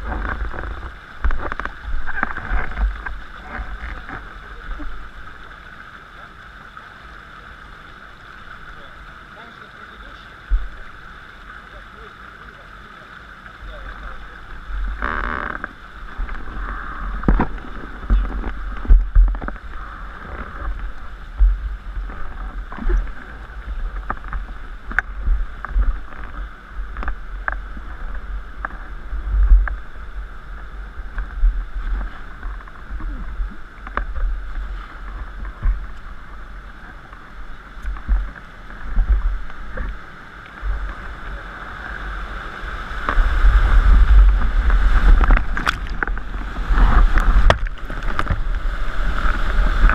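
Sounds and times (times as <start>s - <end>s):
rushing river water: 0.0s - 49.9s
wind buffeting microphone: 13.7s - 49.9s.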